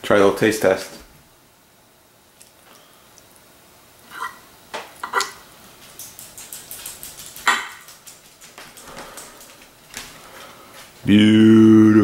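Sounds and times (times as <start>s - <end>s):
fork clinking on ceramic plate: 5.0s - 5.4s, 7.5s - 7.8s.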